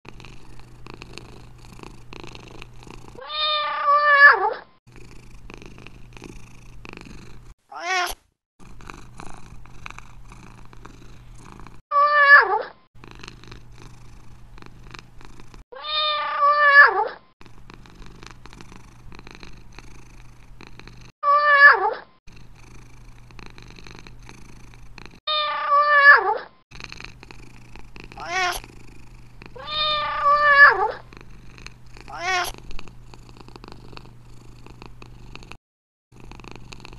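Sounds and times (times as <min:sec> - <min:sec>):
cat purring: 0:00.1 - 0:03.2, 0:04.9 - 0:07.6, 0:08.6 - 0:11.8, 0:13.0 - 0:15.6, 0:17.4 - 0:21.1, 0:22.3 - 0:25.2, 0:26.7 - 0:36.9
cat meowing: 0:03.2 - 0:04.7, 0:07.7 - 0:08.2, 0:11.9 - 0:12.7, 0:15.7 - 0:17.2, 0:21.2 - 0:22.0, 0:25.3 - 0:26.5, 0:28.2 - 0:28.6, 0:29.6 - 0:31.1, 0:32.1 - 0:32.6.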